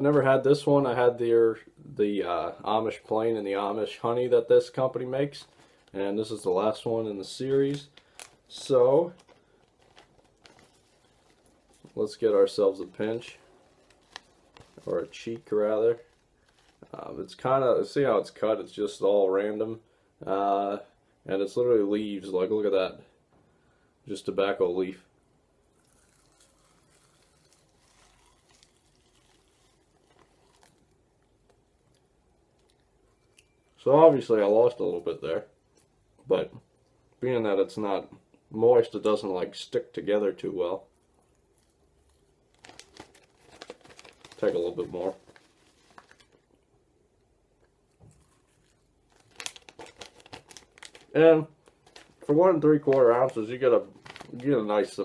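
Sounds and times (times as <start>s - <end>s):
crackly rustling: 3.0s - 17.6s, 25.8s - 36.0s, 40.7s - 46.8s, 47.6s - 55.0s
dry leaves and plastic bag crinkling: 4.6s - 17.5s, 25.8s - 32.0s, 41.6s - 46.4s, 48.1s - 55.0s.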